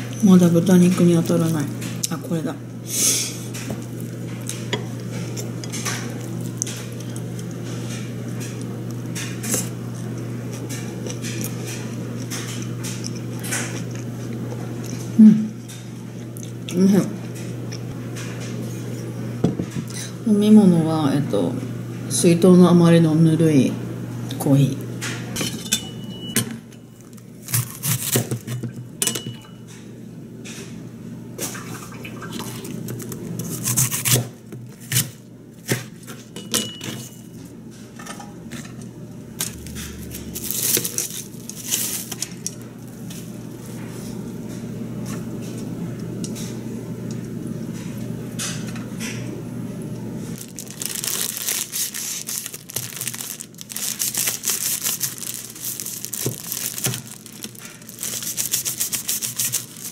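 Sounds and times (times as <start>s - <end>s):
plastic bag rustling: 40.0s - 42.4s, 50.3s - 59.9s.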